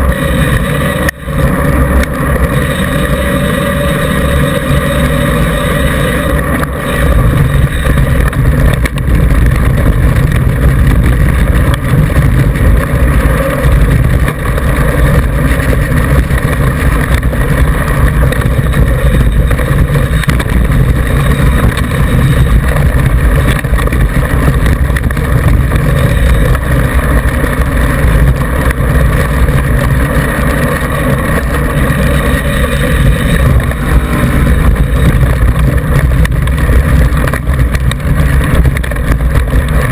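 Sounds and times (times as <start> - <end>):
wind rumble: 0.0 - 39.9.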